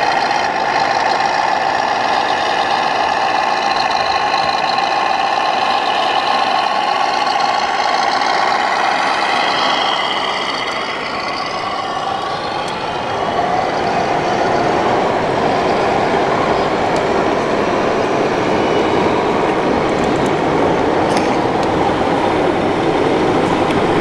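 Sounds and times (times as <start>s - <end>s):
model machinery diesel drone: 0.0s - 24.0s
whining tones: 0.0s - 24.0s.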